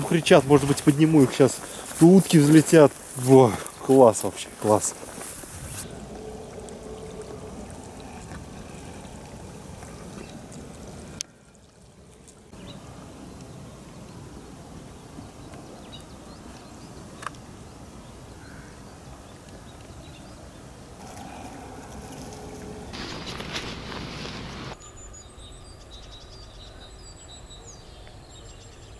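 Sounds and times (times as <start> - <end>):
faint bird calls: 5.8 - 11.5
river rushing hiss: 21.0 - 24.8.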